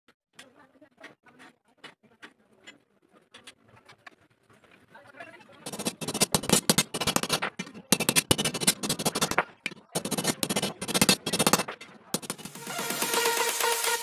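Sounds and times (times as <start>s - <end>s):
electronic music: 12.2s - 14.0s.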